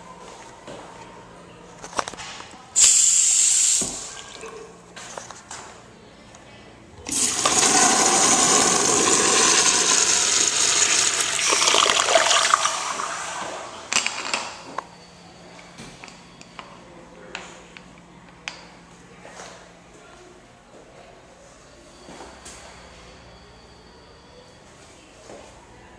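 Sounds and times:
urinal flushing water rush: 7.1s - 13.9s.

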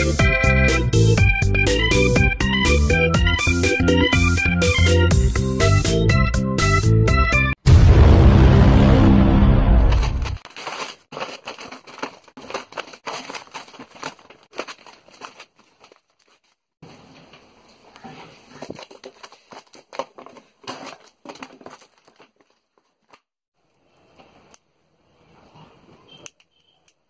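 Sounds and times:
paper crinkling and tearing: 9.8s - 17.4s, 18.0s - 23.3s.

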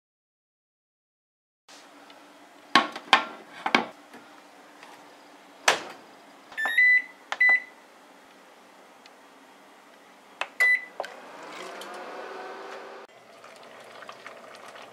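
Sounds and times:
short electronic beeps: 10.6s - 11.0s.

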